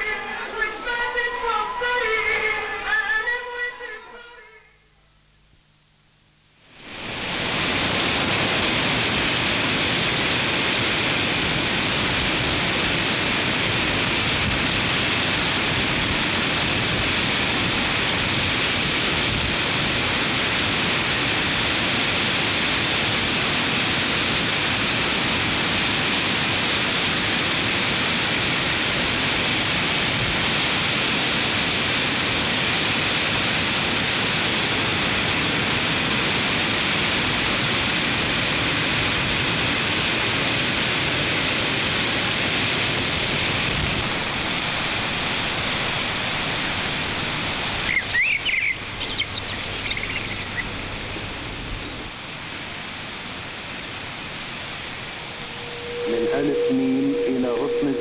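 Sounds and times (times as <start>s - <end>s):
coastal storm rushing noise: 6.7s - 58.0s.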